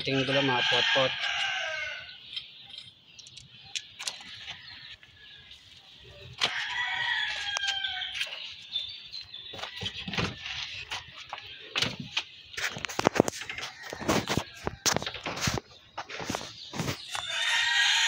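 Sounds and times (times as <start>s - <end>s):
rooster crowing: 0.0s - 2.1s, 6.4s - 8.3s, 17.2s - 18.0s.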